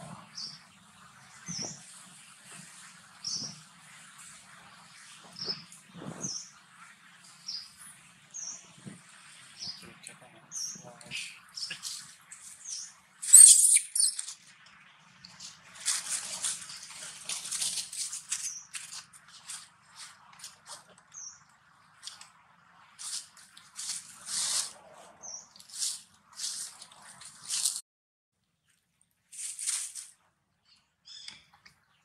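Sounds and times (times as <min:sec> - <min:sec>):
short high squeaks: 0:13.2 - 0:14.3.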